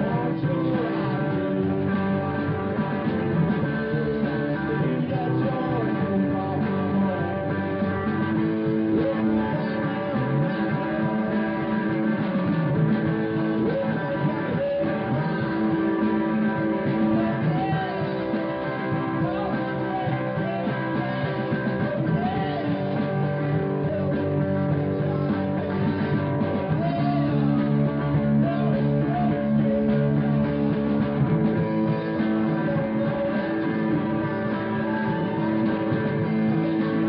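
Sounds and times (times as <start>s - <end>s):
rock band playing: 0.0s - 37.0s.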